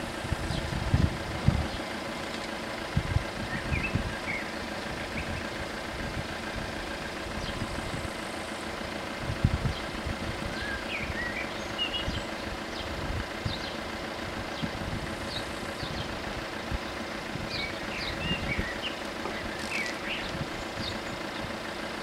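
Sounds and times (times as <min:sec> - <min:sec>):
wind gusting on microphone: 0:00.0 - 0:01.8, 0:02.9 - 0:04.3, 0:09.2 - 0:11.3, 0:14.4 - 0:18.8
car engine idling: 0:00.0 - 0:22.0.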